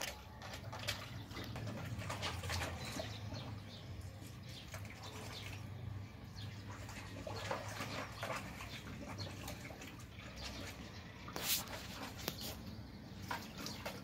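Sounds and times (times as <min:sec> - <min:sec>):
dog splashing water in basin: 0:00.0 - 0:14.0.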